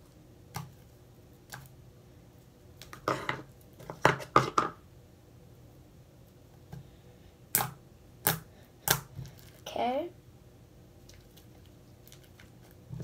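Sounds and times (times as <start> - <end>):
sticky slime smacks and crackles: 7.5 - 9.6.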